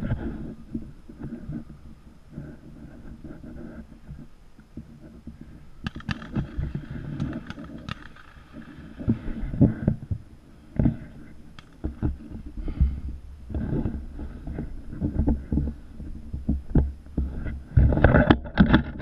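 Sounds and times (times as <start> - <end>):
camera handling thumps and rumble: 0.0 - 19.0
sharp clicks: 5.8 - 8.6.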